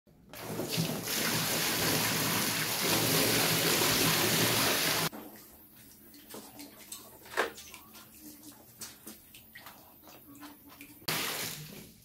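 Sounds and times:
water pouring into pool: 0:00.4 - 0:05.1, 0:11.1 - 0:11.9.

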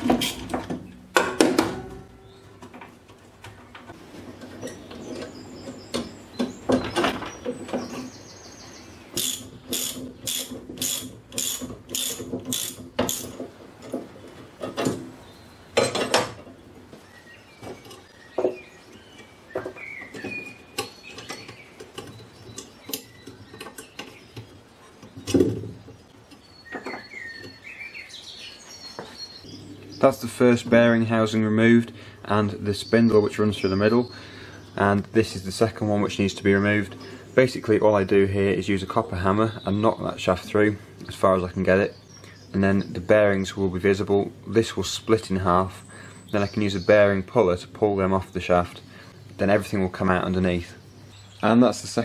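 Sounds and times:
birds chirping faintly: 0:01.8 - 0:52.0
socket ratchet clicking: 0:09.2 - 0:13.4
steel parts clinking and knocking: 0:09.2 - 0:13.5.

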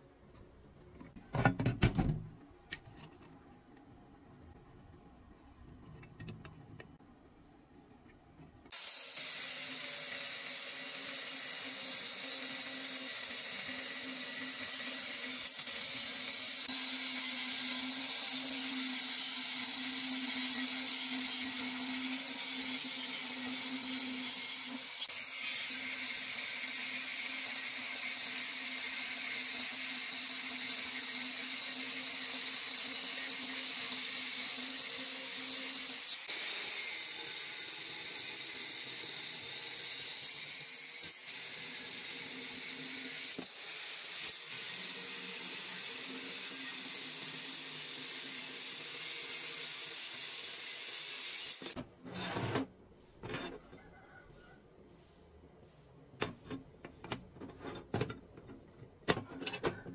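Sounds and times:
angle grinder cutting steel: 0:08.7 - 0:52.3.

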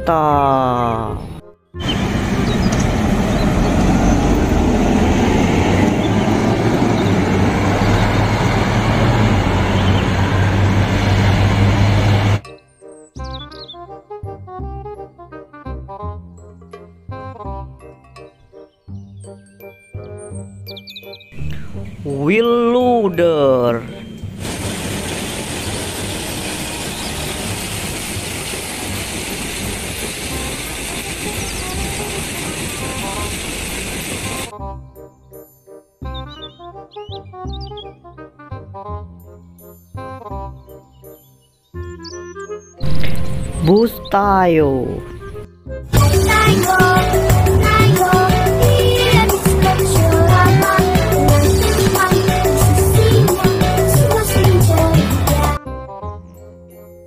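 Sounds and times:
bus engine drone: 0:00.0 - 0:12.4, 0:21.4 - 0:22.4, 0:23.8 - 0:34.5, 0:42.8 - 0:55.6
tyre and traffic noise: 0:01.8 - 0:12.4.

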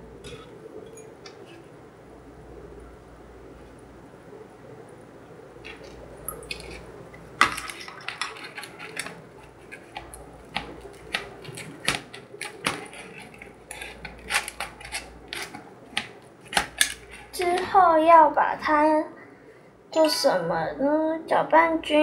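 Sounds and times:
plastic spoon scraping plastic tray: 0:08.2 - 0:17.4.

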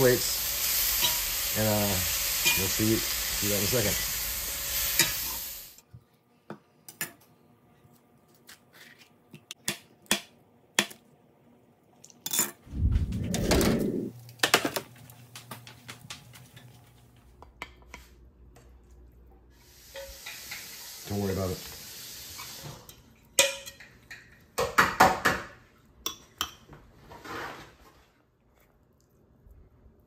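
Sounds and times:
meat sizzling in a skillet: 0:00.0 - 0:05.8, 0:19.6 - 0:23.0
dishes and utensils clattering: 0:22.8 - 0:25.4.

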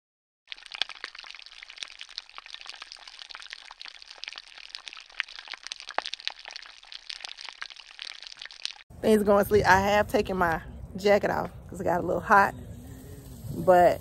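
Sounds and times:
dense crackling pops and clicks: 0:00.5 - 0:08.9.

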